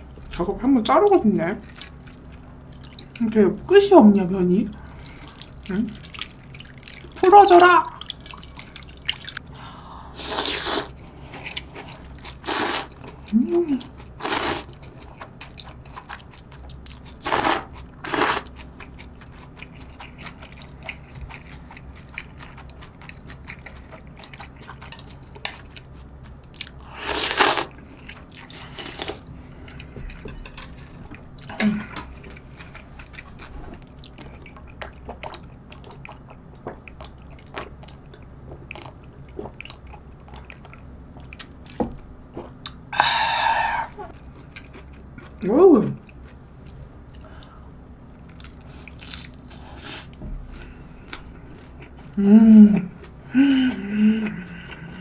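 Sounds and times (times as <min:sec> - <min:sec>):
quiet chewing: 0:08.0 - 0:09.8, 0:11.0 - 0:42.9, 0:43.8 - 0:45.4, 0:46.0 - 0:52.2, 0:52.8 - 0:55.0
slurping broth: 0:10.2 - 0:10.9
slurping noodles: 0:10.2 - 0:10.9.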